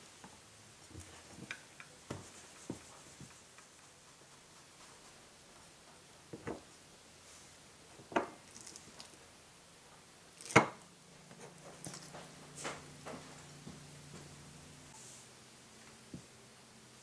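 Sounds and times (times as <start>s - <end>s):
faint clicks and taps: 1.0s - 5.1s.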